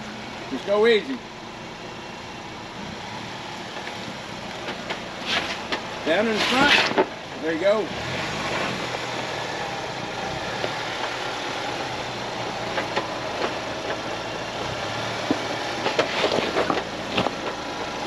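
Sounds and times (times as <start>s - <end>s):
car engine idling: 0.0s - 18.0s
stones popping under tyres: 3.6s - 7.4s, 8.2s - 18.0s.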